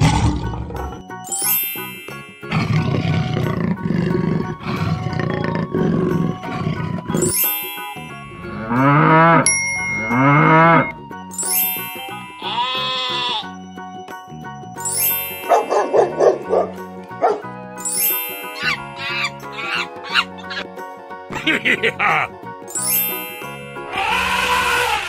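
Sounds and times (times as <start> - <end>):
big cat growling: 0.0 - 1.0, 2.5 - 7.2
children's music: 0.7 - 25.0
cow mooing: 8.5 - 9.5, 10.1 - 10.9
sheep bleating: 12.4 - 13.5.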